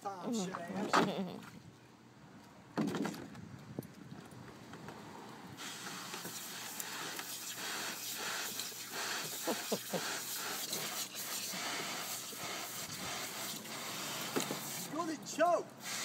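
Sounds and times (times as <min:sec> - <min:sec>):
garden hose spraying water: 0:05.6 - 0:15.2, 0:15.8 - 0:16.0.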